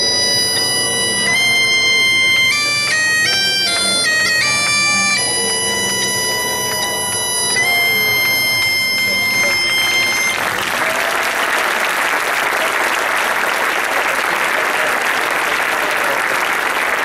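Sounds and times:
held high-pitched tone: 0.0 - 10.5
audience applauding: 6.0 - 17.0.

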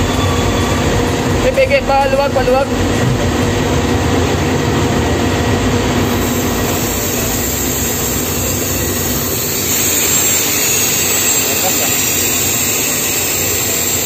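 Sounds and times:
air motor rushing and humming: 0.0 - 14.0.

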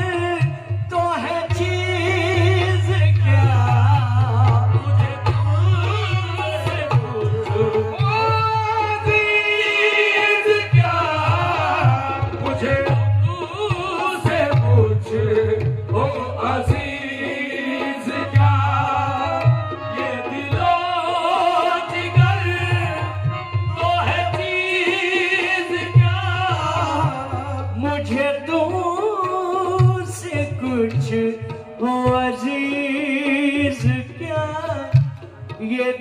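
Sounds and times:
tabla drumming: 0.0 - 36.0.

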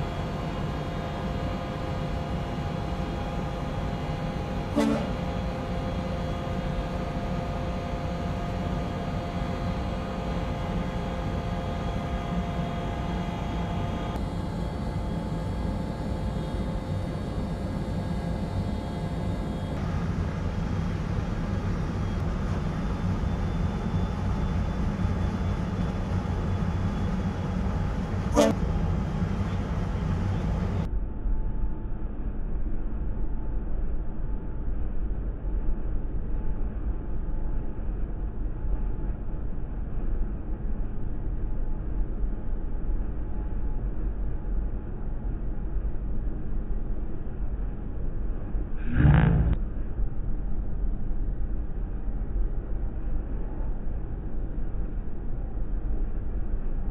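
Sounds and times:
machinery rumble and hum: 0.0 - 56.9
short sharp sound: 48.8 - 49.6
steady tones: 48.8 - 49.6.

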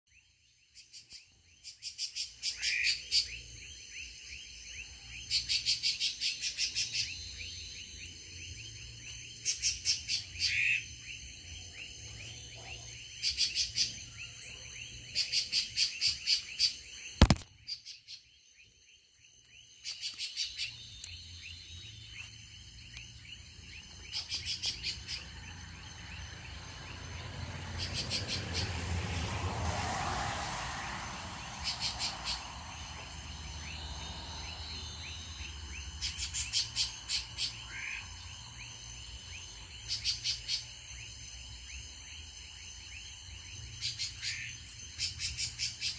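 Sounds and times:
sharp click: 17.2 - 17.6.

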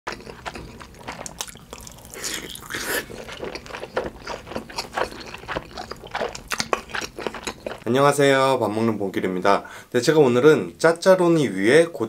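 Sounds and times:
man chewing with mouth clicks: 0.1 - 7.9.

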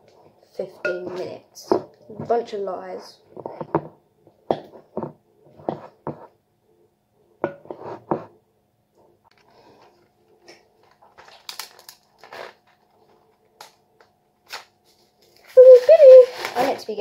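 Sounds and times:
plastic packet crackling: 10.8 - 12.9.

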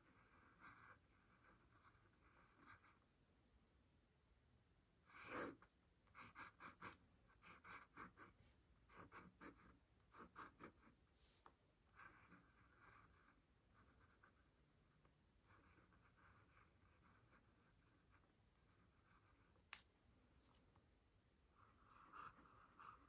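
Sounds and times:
pen scratching on paper: 0.0 - 3.0, 5.1 - 11.0, 11.9 - 19.6, 21.6 - 23.0.

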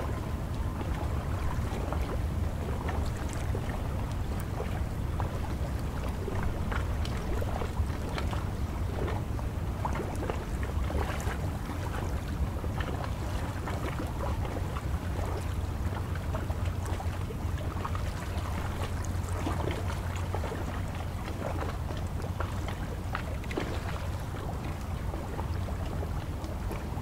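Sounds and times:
low wind rumble on microphone: 0.0 - 27.0
water splashing against quay: 0.0 - 27.0.

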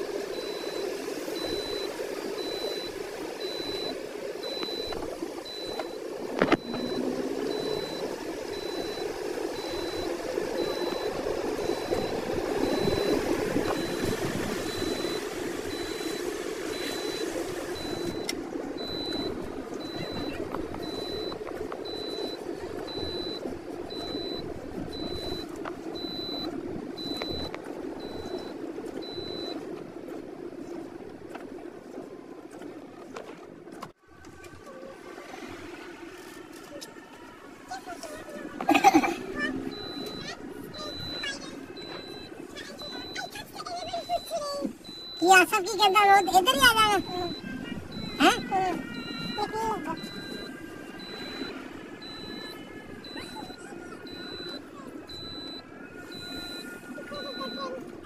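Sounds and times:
car engine and tyre noise: 0.0 - 45.4
high repeating beep: 1.4 - 6.0, 6.6 - 25.4, 39.7 - 57.8.

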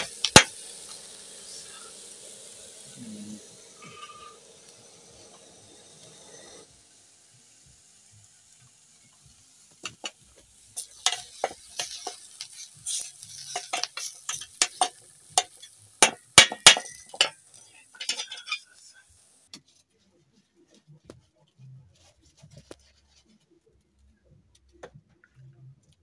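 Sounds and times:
metal spoon scraping metal pot: 10.8 - 19.0.

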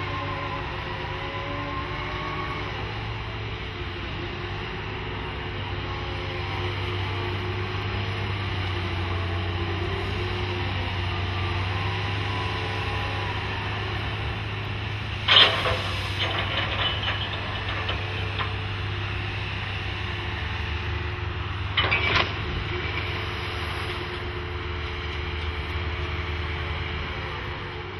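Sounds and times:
crane diesel engine running: 0.0 - 27.9
loud metallic clatters: 15.2 - 18.7.

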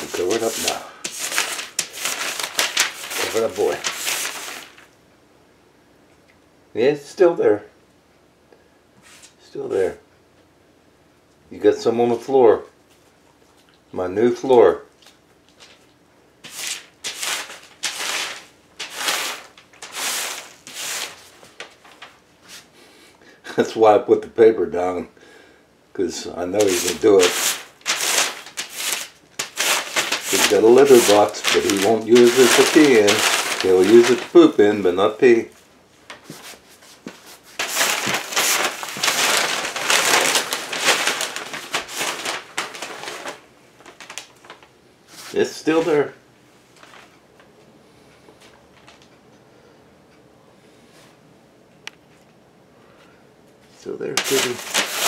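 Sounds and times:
newspaper rustling: 0.0 - 4.9, 15.0 - 22.7, 26.5 - 46.1, 46.8 - 47.2, 48.5 - 49.1, 54.0 - 55.0.

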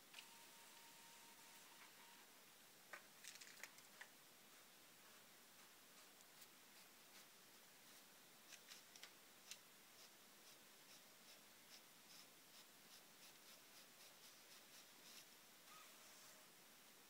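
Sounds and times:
faint printer clicks: 0.1 - 0.9.

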